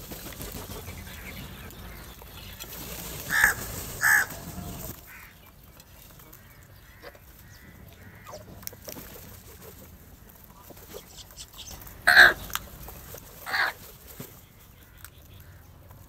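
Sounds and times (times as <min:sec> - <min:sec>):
crows cawing: 0:03.2 - 0:05.5, 0:06.4 - 0:08.6, 0:12.0 - 0:12.5, 0:13.4 - 0:13.8.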